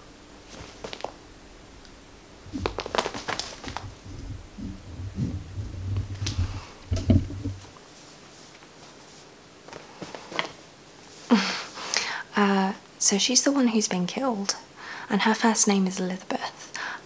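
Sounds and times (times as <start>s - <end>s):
rustling: 0.4s - 1.2s, 2.4s - 11.3s
choppy low rumble: 1.3s - 7.6s.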